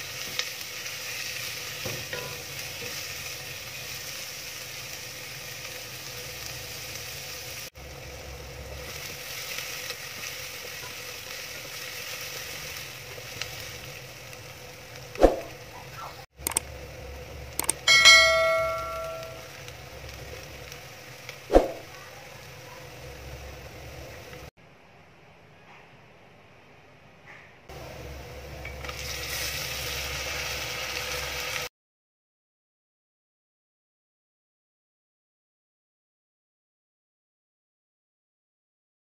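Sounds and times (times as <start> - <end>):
onions sizzling in oil: 0.0 - 24.5, 27.7 - 31.7
clicks: 16.4 - 16.6, 17.6 - 19.4
ringing bell chime: 17.9 - 19.5.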